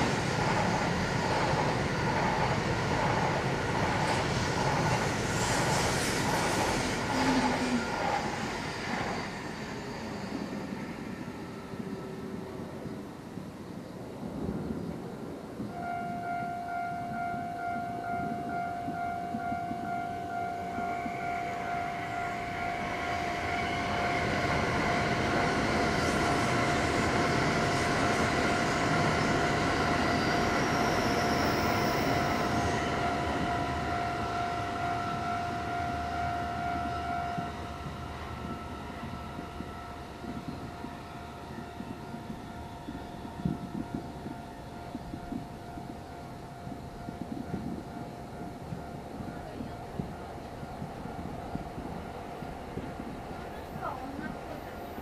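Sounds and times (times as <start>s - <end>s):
train passing on tracks: 0.0s - 55.0s
steady high tone: 15.7s - 51.2s.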